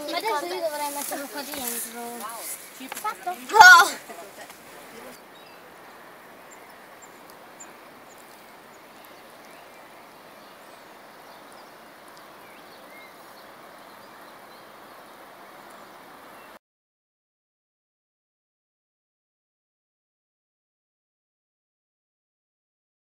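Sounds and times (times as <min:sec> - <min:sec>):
outdoor background noise: 0:00.0 - 0:16.6.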